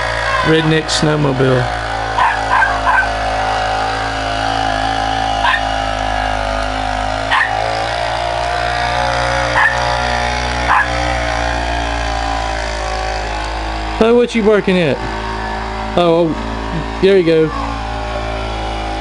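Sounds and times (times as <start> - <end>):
engine running steadily: 0.0 - 19.0
dog barking: 2.2 - 3.1, 5.4 - 5.6, 7.3 - 7.6, 9.6 - 9.9, 10.7 - 11.0.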